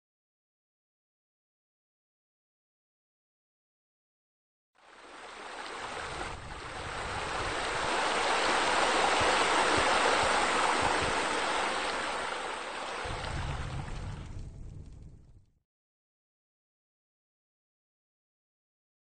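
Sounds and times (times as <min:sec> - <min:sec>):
rushing water: 0:04.8 - 0:14.4.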